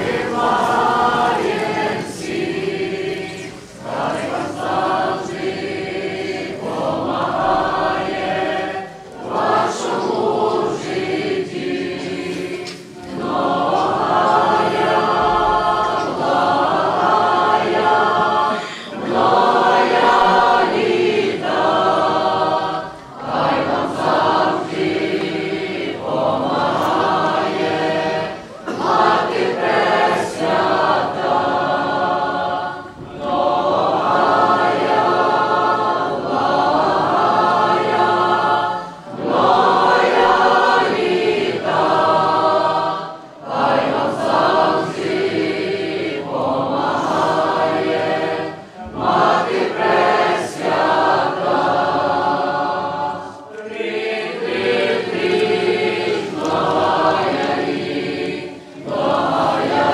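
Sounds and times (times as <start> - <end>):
choir singing: 0.0 - 59.9.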